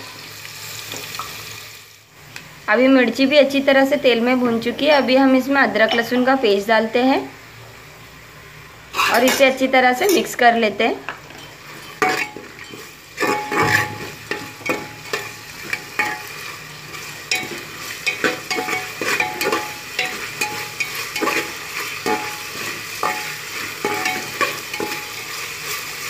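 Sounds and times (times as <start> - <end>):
paste sizzling in hot oil: 0.0 - 2.1, 11.3 - 26.0
utensil scraping metal pot: 8.9 - 10.3, 11.4 - 26.0.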